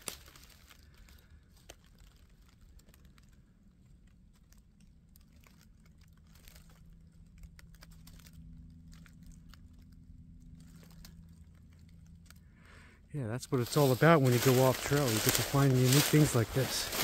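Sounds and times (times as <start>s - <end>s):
footsteps on dry leaves: 0.0s - 2.9s, 13.4s - 17.0s.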